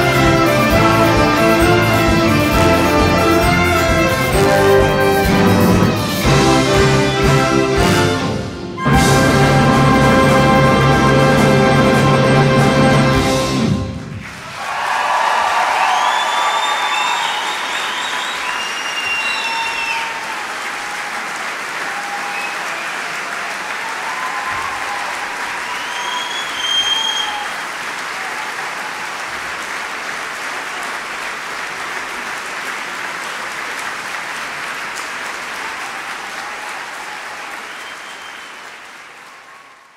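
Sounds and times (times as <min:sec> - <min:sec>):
audience applauding: 0:00.0 - 0:39.9
whistles and cheers: 0:14.3 - 0:29.3, 0:35.5 - 0:39.9.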